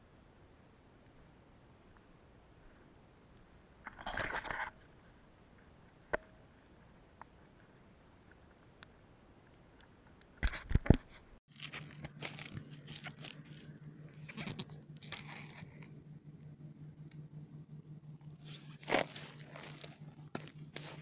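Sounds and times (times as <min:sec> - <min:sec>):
low steady hum: 0:00.0 - 0:21.0
crackling: 0:03.3 - 0:16.0, 0:18.2 - 0:21.0
crunching and rustling: 0:10.9 - 0:16.0, 0:18.4 - 0:21.0.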